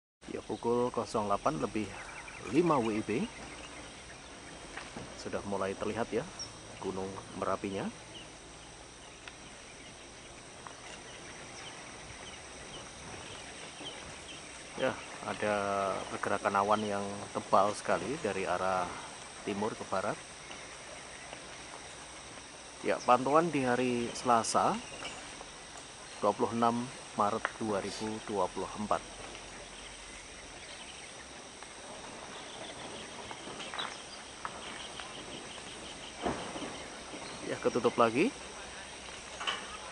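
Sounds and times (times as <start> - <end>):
insect drone: 0.2 - 39.9
steady background hiss: 0.2 - 39.9.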